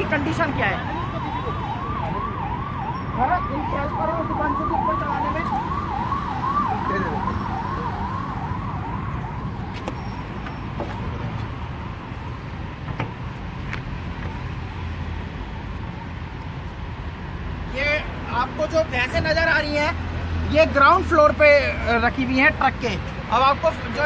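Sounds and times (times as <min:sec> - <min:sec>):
siren yelping: 0:00.0 - 0:11.3.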